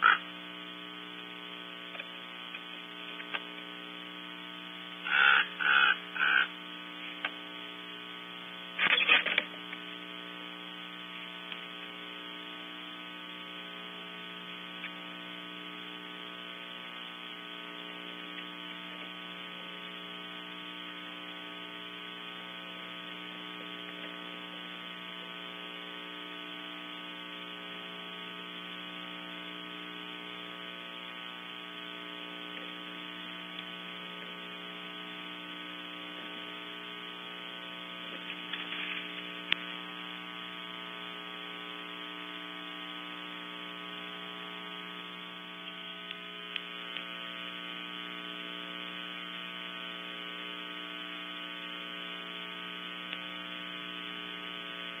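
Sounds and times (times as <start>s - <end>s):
electrical hum and buzz: 0.0s - 55.0s
faint scratches and clicks: 1.9s - 3.7s, 8.8s - 9.9s, 38.1s - 39.8s.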